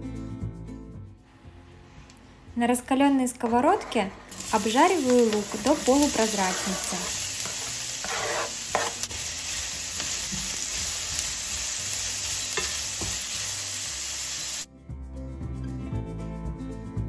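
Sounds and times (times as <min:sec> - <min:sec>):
background music: 0:00.0 - 0:17.0
spatula scraping and tapping: 0:03.3 - 0:04.4, 0:05.0 - 0:09.2
onion sizzling in a frying pan: 0:04.3 - 0:14.7.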